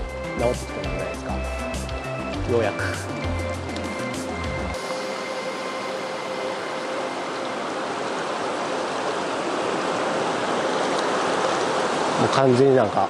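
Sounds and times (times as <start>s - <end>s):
background music: 0.0s - 9.0s
river water over rocks: 1.5s - 13.0s.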